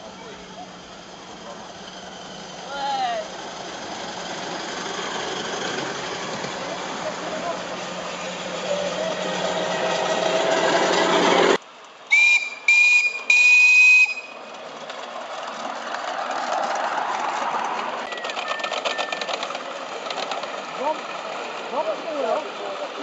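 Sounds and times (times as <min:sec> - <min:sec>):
miniature train running on track: 0:00.0 - 0:23.0
steam locomotive whistle blasts: 0:12.1 - 0:14.4.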